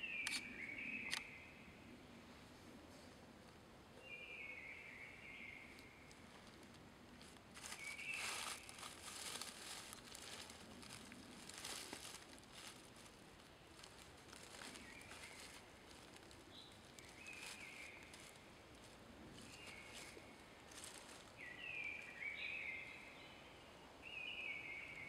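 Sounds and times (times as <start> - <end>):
aluminium foil crinkling: 6.1 - 21.4
bird chirping: 13.8 - 18.4.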